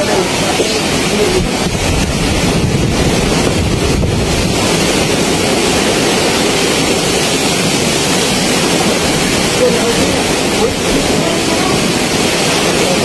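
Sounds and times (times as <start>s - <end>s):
surf: 0.0s - 13.0s
wind buffeting microphone: 0.0s - 13.0s
wind rushing: 0.0s - 13.0s.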